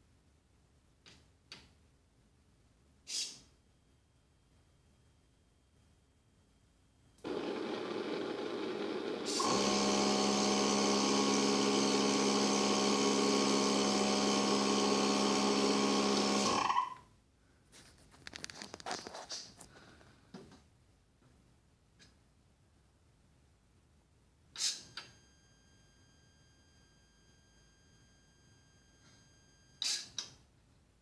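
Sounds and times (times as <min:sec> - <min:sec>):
handling rustles: 0:17.7 - 0:20.2.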